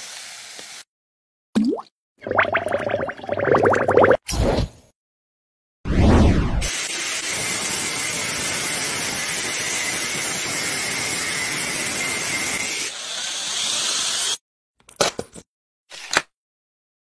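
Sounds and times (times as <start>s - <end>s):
angle grinder cutting steel: 6.6s - 14.4s
drill boring into metal: 6.8s - 14.4s.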